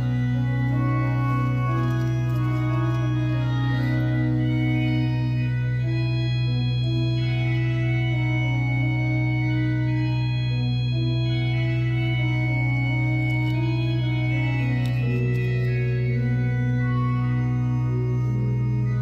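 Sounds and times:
slow organ music: 0.0s - 19.0s.

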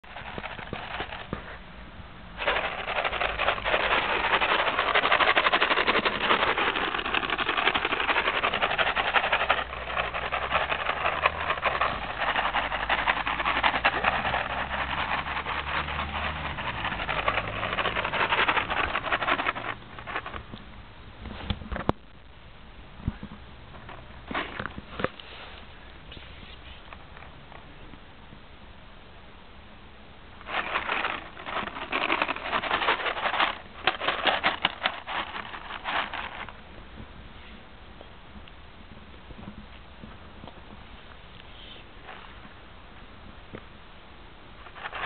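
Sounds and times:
treats rattling in a shaken box: 0.0s - 1.6s, 2.4s - 20.6s, 30.4s - 36.6s, 44.6s - 45.0s.

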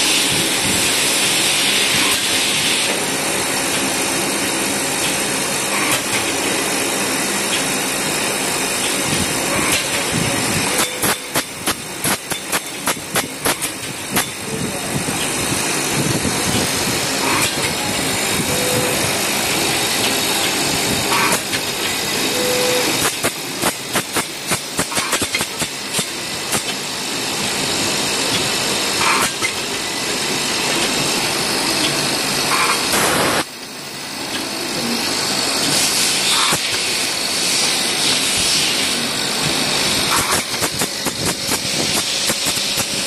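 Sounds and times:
sorting machine running: 0.0s - 43.0s.

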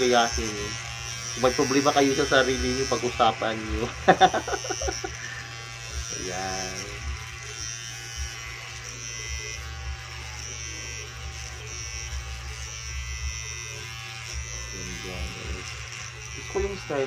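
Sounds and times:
electric hair clipper buzzing: 0.0s - 17.0s.

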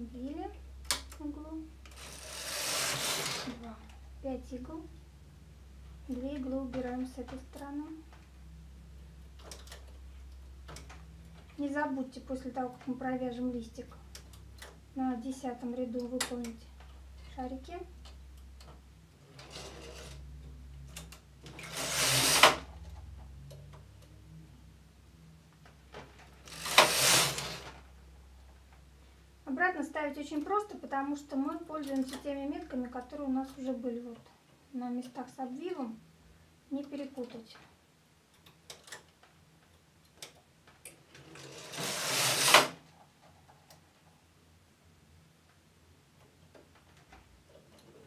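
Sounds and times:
knitting machine carriage sliding: 1.9s - 3.8s, 19.2s - 22.9s, 25.9s - 27.9s, 41.0s - 42.8s.

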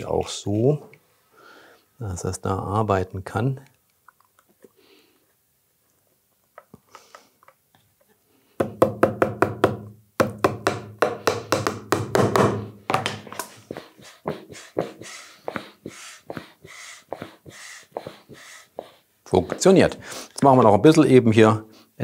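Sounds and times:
hammer tapping nails: 8.6s - 16.5s.

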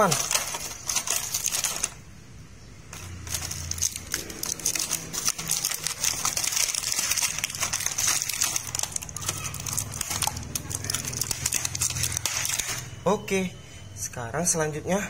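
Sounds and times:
plastic tray crinkling and clicking: 0.0s - 2.0s, 3.0s - 12.9s.

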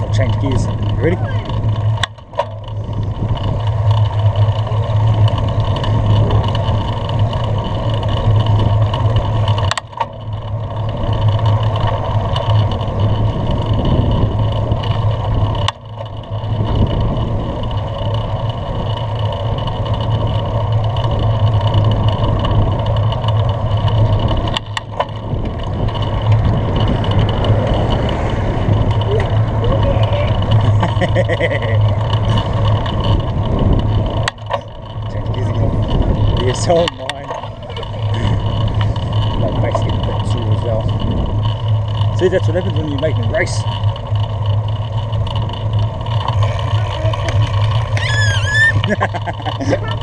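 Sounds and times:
wind buffeting microphone: 2.6s - 9.6s, 10.8s - 15.6s, 16.2s - 18.9s, 19.5s - 31.0s, 31.8s - 43.4s.

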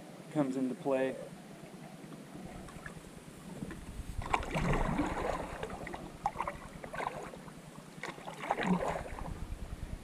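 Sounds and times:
paddle splashing water: 2.1s - 9.4s.

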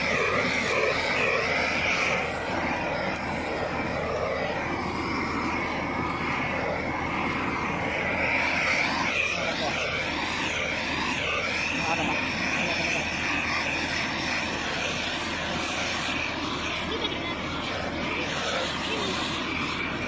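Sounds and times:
gas torch flame rushing: 0.0s - 20.0s.

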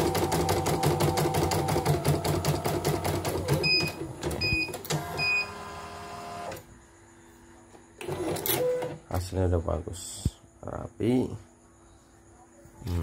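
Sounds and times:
embroidery machine stitching: 0.0s - 6.6s.

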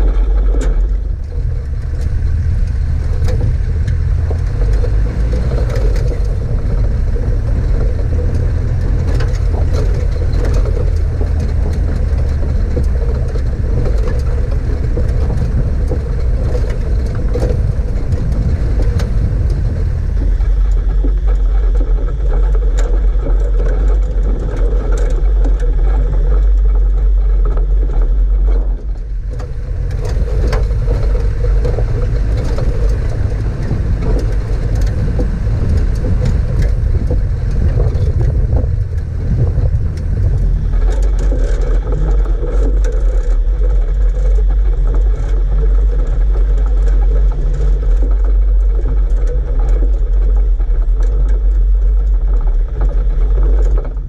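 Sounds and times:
knocks and rattles from bumps: 0.0s - 54.0s
vehicle engine and tyre rumble: 0.0s - 54.0s.

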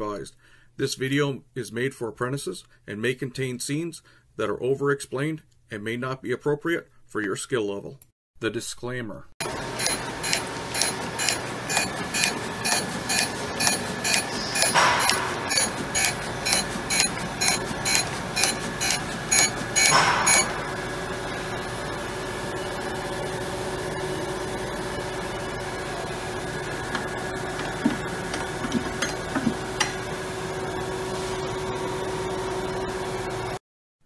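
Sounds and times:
surface grinder humming: 9.4s - 33.6s.

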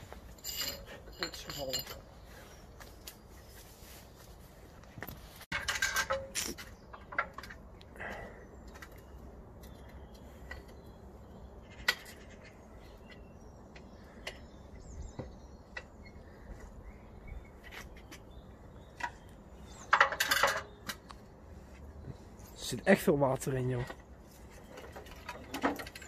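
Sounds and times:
clattering of lamp handling: 5.5s - 7.7s.

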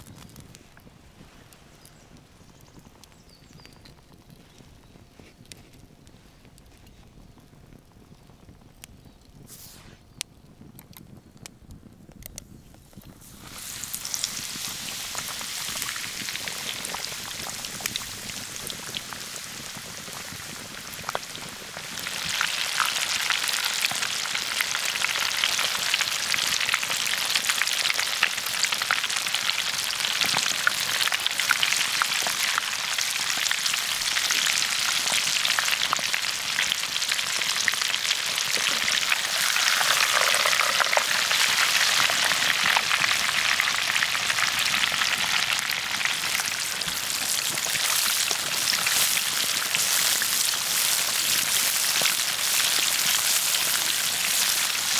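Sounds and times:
meat sizzling in hot oil: 13.0s - 54.9s.

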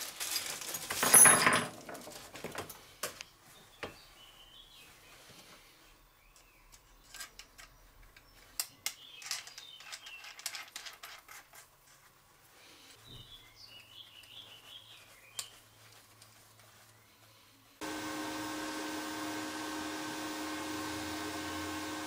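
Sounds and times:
small metal parts clicking: 6.4s - 11.7s.

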